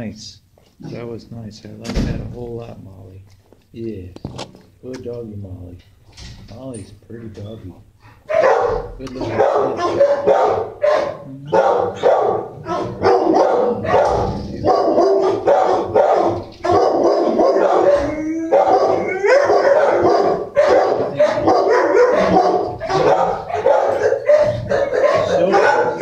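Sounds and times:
dogs barking: 8.1 - 26.0
dog howl-like yelp: 9.3 - 26.0.

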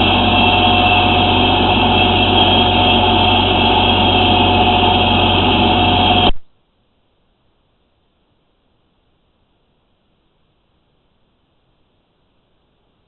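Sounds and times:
machine drone with whine: 0.0 - 6.4.

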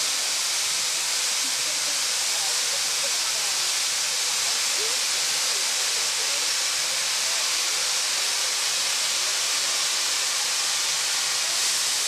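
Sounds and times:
steam locomotive venting steam: 0.0 - 12.0.

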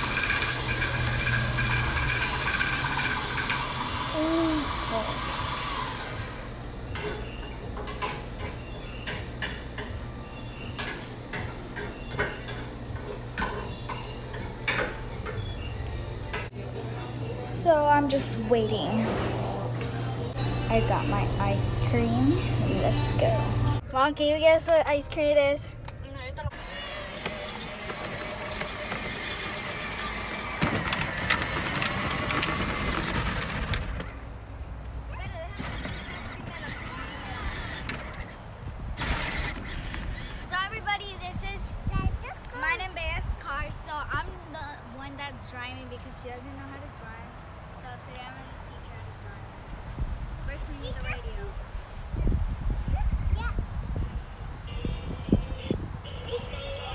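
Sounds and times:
plastic wheels clicking and rattling: 0.0 - 5.1, 27.1 - 34.3, 39.0 - 40.5
toy car electric motor whine: 0.0 - 6.6, 26.5 - 34.2, 35.6 - 38.4, 39.0 - 40.5
low machine hum: 13.9 - 24.4.

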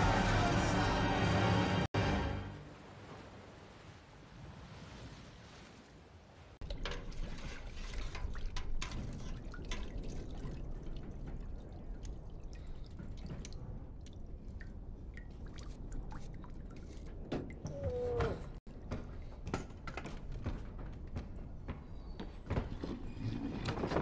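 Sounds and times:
water dripping: 6.6 - 18.1.

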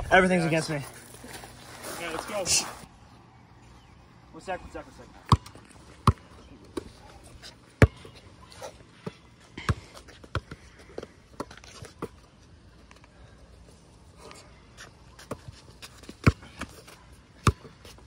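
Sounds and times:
basketball bouncing on concrete: 5.2 - 6.9, 7.8 - 8.2, 9.0 - 12.2, 16.0 - 16.8, 17.4 - 18.0.

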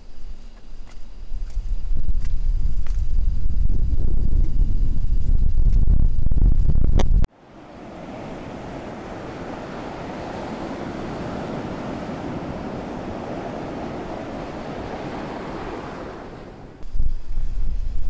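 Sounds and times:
ocean surf washing: 7.3 - 16.8.

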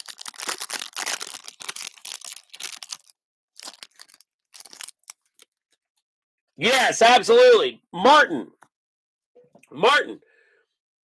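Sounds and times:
foil wrapper tearing and crinkling: 0.0 - 5.6.

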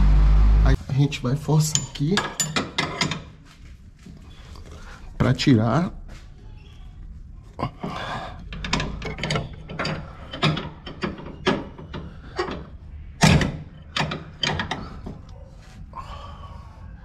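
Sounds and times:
metallic clicks and knocks: 1.6 - 3.3, 8.4 - 15.3.

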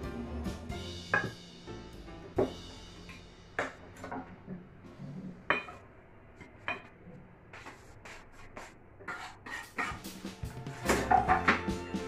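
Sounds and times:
knife scraping on cutting board: 7.6 - 10.1.

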